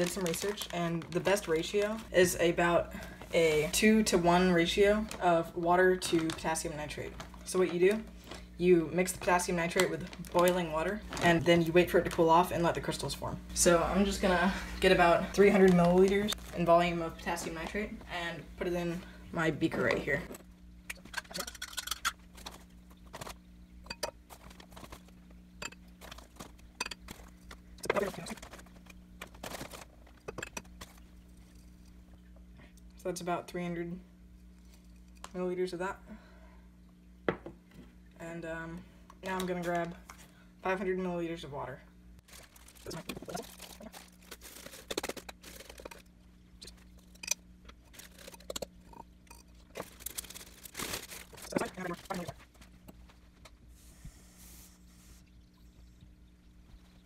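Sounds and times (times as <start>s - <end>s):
plastic bag rustling: 0.0s - 2.5s, 3.2s - 13.0s, 14.5s - 17.9s, 22.2s - 23.5s, 24.2s - 31.6s, 42.2s - 46.1s, 47.8s - 48.6s, 49.7s - 53.4s
faint steady hum: 0.0s - 57.0s.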